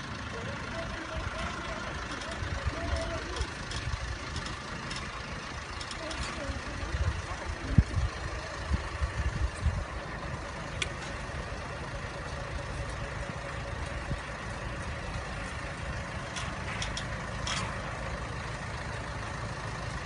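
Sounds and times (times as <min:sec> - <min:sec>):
truck engine running: 0:00.0 - 0:20.0.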